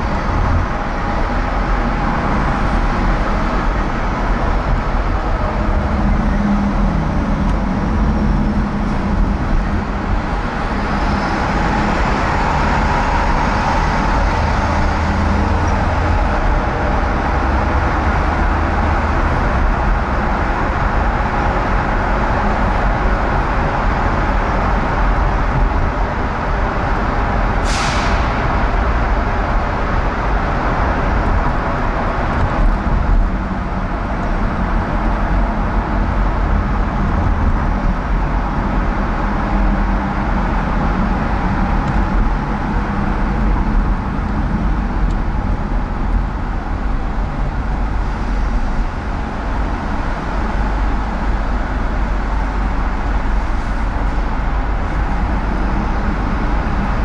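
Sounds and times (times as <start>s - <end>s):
car tyre and engine noise: 0.0s - 57.0s
surrounding traffic: 0.0s - 57.0s
brief sharp hiss: 27.6s - 28.3s.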